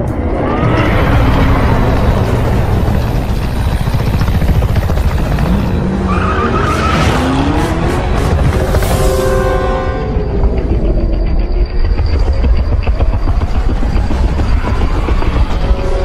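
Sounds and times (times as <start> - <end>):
dense rushing noise: 0.0 - 6.0
car engines revving: 0.0 - 10.9.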